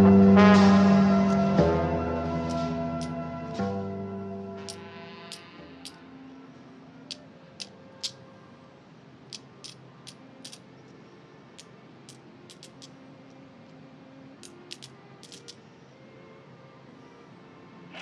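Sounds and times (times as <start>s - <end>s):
coins clinking on wooden table: 4.6s - 6.0s, 9.3s - 10.6s, 11.6s - 13.0s, 14.4s - 15.6s.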